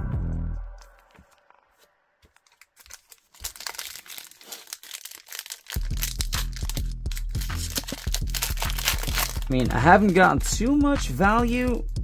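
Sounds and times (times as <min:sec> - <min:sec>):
background music: 0:00.0 - 0:01.8, 0:05.0 - 0:12.0
foil wrapper crinkling and tearing: 0:02.2 - 0:10.5.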